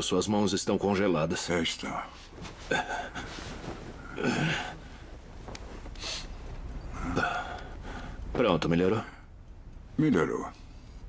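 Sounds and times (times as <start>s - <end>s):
bedclothes rustling: 0.8s - 9.0s
man sighing: 4.0s - 5.0s.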